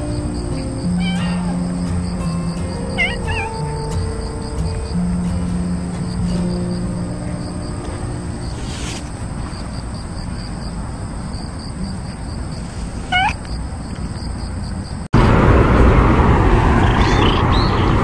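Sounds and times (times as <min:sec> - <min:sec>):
faint high chirps: 0:00.0 - 0:10.8
faint squeaky meows: 0:00.8 - 0:01.6, 0:02.9 - 0:03.9, 0:13.0 - 0:13.4
cat meowing: 0:00.8 - 0:01.7, 0:02.9 - 0:04.1, 0:13.0 - 0:13.5
hand rustling cat fur: 0:07.9 - 0:09.9.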